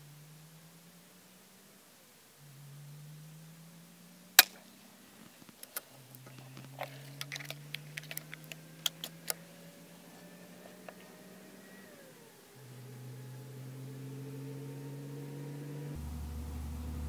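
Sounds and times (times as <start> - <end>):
faint low hum: 0.0 - 17.0
clicks and knocks of rifle action: 4.4 - 9.5.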